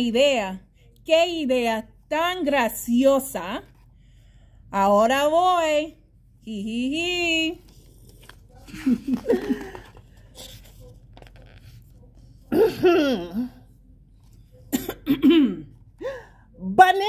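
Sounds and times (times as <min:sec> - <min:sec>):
woman laughing: 0:08.6 - 0:10.0.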